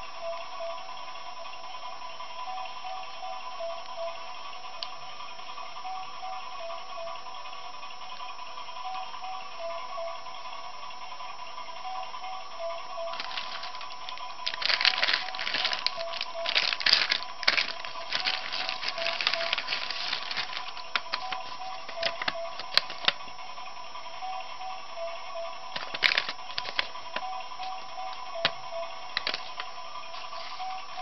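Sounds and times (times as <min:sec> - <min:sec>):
plastic and paper crinkling: 0:13.1 - 0:23.2, 0:25.7 - 0:27.2, 0:29.2 - 0:30.7.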